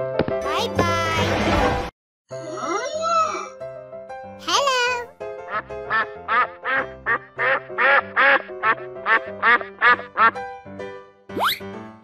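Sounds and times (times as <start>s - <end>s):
children's music: 0.4s - 8.3s
ducks quacking: 5.5s - 10.4s.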